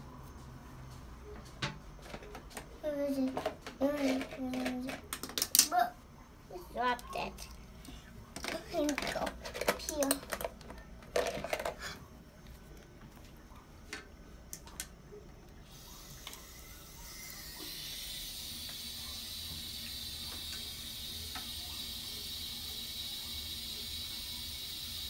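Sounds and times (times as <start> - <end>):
tap water running into sink: 17.6 - 25.0.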